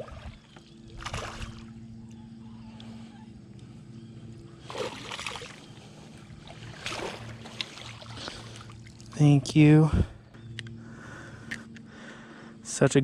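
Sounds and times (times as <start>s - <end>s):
steady low hum: 0.0s - 13.0s
fish splashing at water surface: 4.7s - 5.7s, 6.5s - 8.9s.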